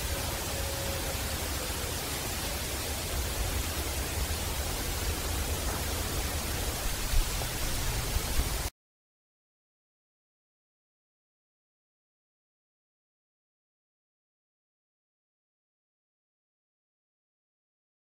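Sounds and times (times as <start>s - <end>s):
faint thin tone: 0.0s - 4.7s
heavy hiss: 0.0s - 8.7s.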